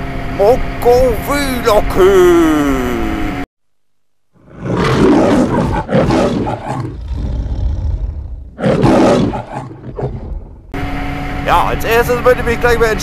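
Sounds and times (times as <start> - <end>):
lion growling roars: 4.4 - 10.7.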